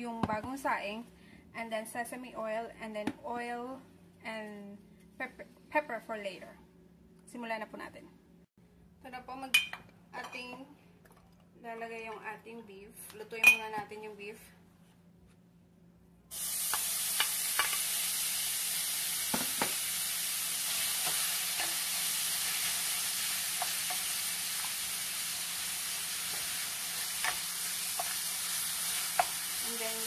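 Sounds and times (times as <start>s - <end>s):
meat sizzling in hot oil: 16.3s - 30.0s.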